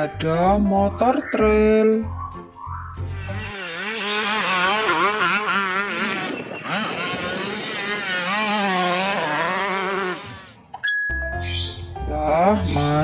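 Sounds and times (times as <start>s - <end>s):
dirt bike engine revving: 3.0s - 10.7s.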